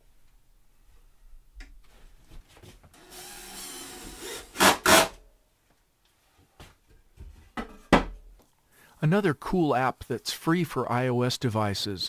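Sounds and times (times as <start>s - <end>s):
cordless drill driving screw: 3.0s - 5.2s.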